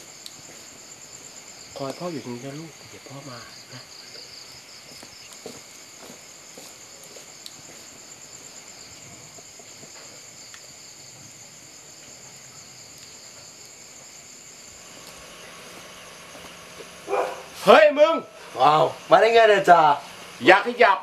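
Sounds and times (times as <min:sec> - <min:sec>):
night insects chirring: 0:00.0 - 0:21.0
faint ticks: 0:00.2 - 0:00.4, 0:07.0 - 0:07.6, 0:12.9 - 0:13.2.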